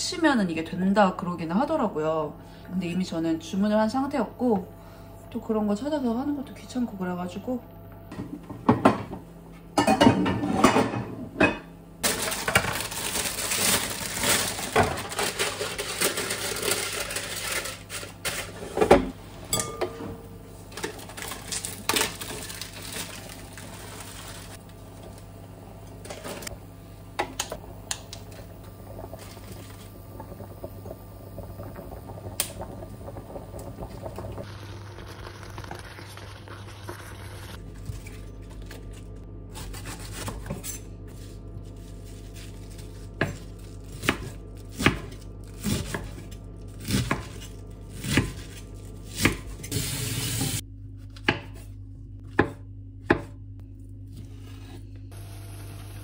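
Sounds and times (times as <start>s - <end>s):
kitchenware clinking: 9.8s - 11.7s, 18.4s - 20.2s.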